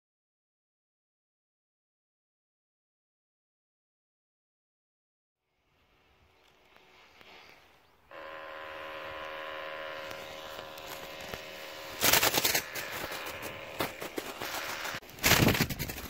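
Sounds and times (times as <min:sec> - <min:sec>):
small motor whirring and rattling: 0:05.6 - 0:16.0.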